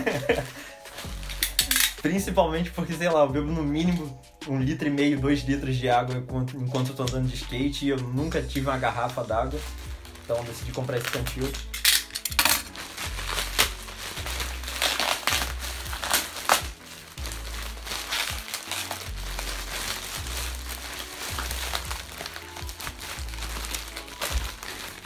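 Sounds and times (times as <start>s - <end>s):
plastic bag crinkling: 0.0s - 2.1s, 8.4s - 25.0s
background music with bass line: 0.0s - 25.0s.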